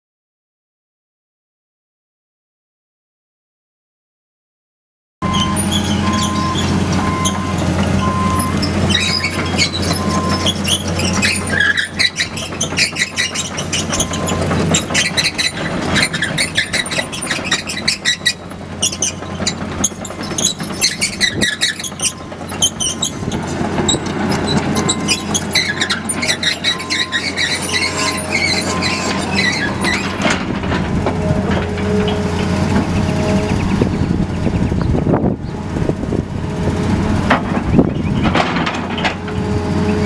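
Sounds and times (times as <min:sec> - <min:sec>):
regular beeping: 0:05.2 - 0:11.4, 0:21.8 - 0:30.4
metallic clanks and squeaks: 0:05.2 - 0:36.1, 0:37.2 - 0:40.0
diesel engine drone: 0:05.2 - 0:40.0.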